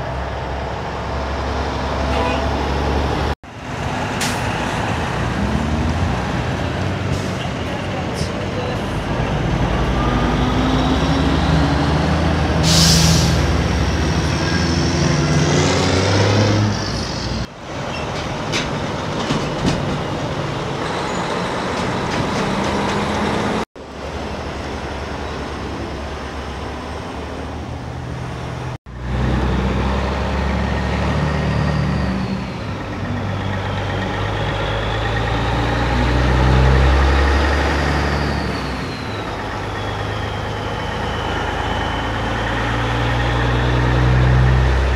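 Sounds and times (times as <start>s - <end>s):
diesel trucks driving past: 0.0s - 44.9s
air brake hiss: 12.6s - 13.5s.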